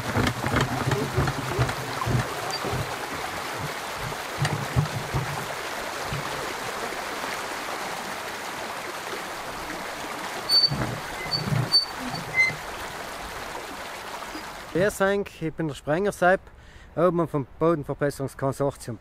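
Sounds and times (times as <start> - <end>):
low thuds: 0.0 - 6.4
water rushing through sluice gate: 0.0 - 15.0.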